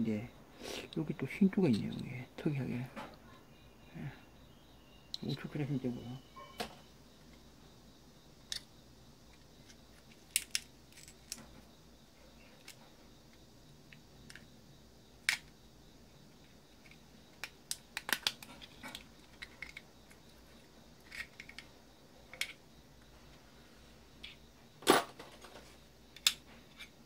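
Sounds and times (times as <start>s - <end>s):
plastic and metal parts clicking: 10.0s - 11.5s, 16.8s - 19.9s.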